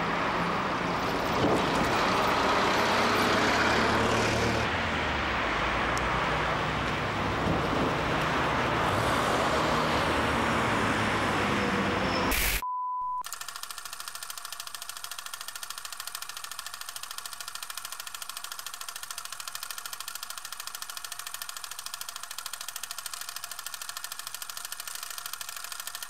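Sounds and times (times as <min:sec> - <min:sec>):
film projector clattering: 0:13.3 - 0:26.0.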